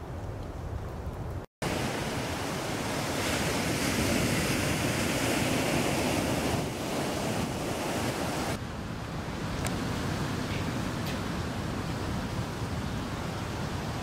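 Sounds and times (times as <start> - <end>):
wind on microphone: 0.0 - 14.0
surf breaking on beach: 1.6 - 8.6.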